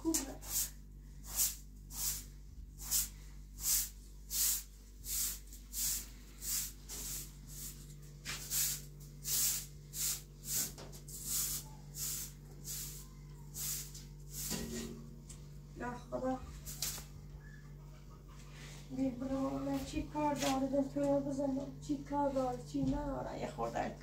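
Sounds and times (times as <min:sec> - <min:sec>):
hand broom sweeping floor: 0:00.0 - 0:15.0, 0:16.4 - 0:17.2, 0:18.4 - 0:21.2.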